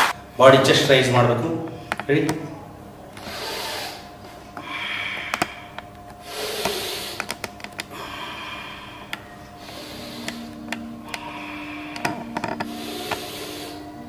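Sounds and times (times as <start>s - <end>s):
dumbbell plates clicking: 1.6s - 2.4s, 4.6s - 13.9s.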